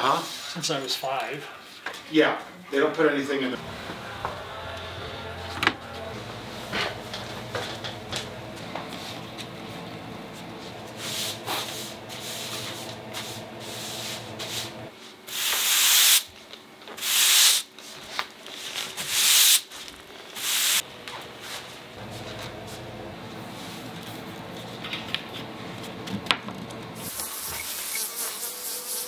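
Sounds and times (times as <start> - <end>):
broom sweeping plank floor: 3.6 - 24.8.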